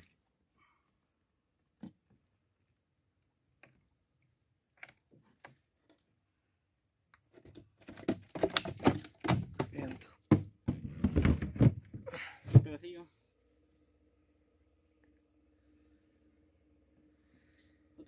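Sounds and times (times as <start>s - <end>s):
knocks and rattles in a cooler: 7.3s - 12.9s.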